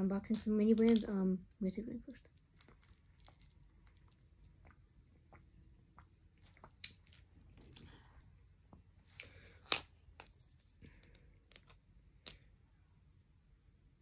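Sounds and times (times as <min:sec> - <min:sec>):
plastic objects clicking: 0:00.3 - 0:01.1.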